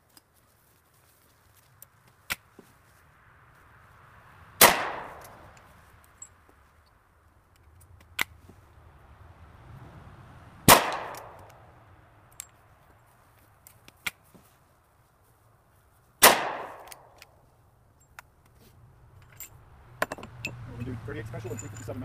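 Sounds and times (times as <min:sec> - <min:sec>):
rifle gunshots with echo: 0:04.6 - 0:05.4, 0:10.7 - 0:11.4, 0:16.2 - 0:17.1.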